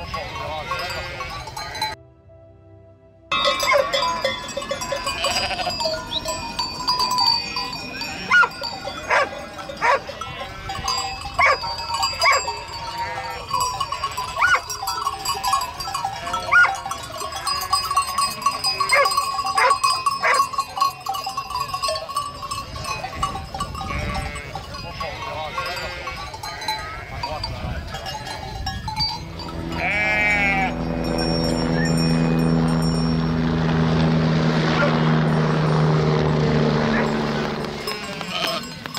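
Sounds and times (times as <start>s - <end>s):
sheep bleating: 0.0s - 1.9s, 4.8s - 6.1s, 7.4s - 11.0s, 12.2s - 16.8s, 23.8s - 27.9s, 29.5s - 30.9s, 37.6s - 38.9s
bells ringing: 0.0s - 2.0s, 3.3s - 38.9s.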